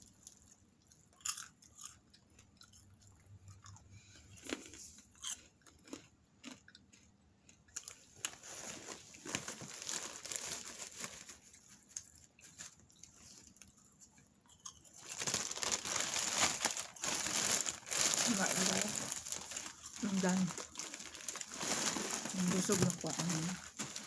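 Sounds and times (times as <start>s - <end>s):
crunchy chewing of popcorn: 0.0s - 24.0s
plastic bag crinkling: 8.2s - 13.7s, 15.0s - 24.0s.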